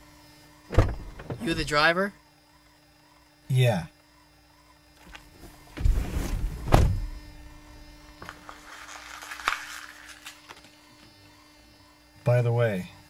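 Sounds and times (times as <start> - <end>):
car door shutting: 0.7 - 1.7, 5.4 - 7.3.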